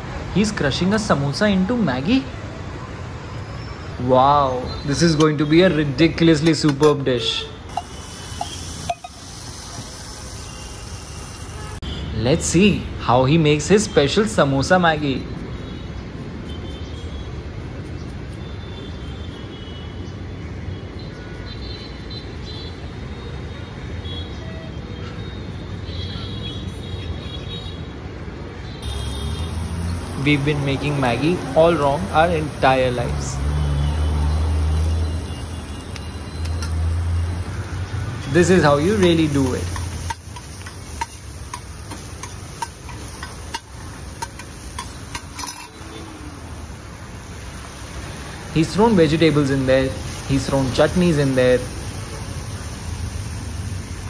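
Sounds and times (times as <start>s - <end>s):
street traffic rumble: 0.0s - 54.0s
spatula scraping on griddle: 38.8s - 46.0s.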